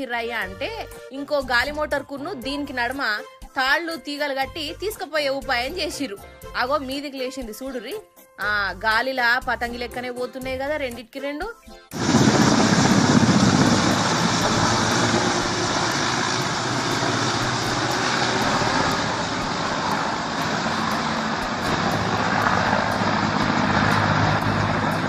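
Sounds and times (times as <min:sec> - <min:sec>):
helicopter flying overhead: 0:11.9 - 0:25.0.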